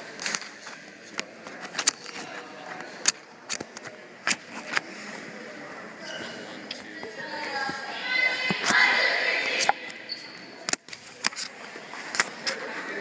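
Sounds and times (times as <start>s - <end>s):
crowd chatter: 0.0s - 13.0s.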